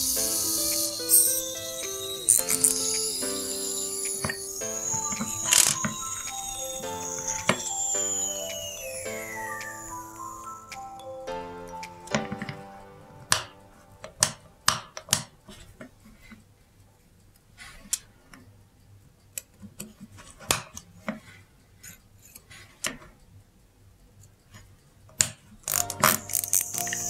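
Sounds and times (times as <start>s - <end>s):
metallic clicks of small tools: 24.2s - 27.0s.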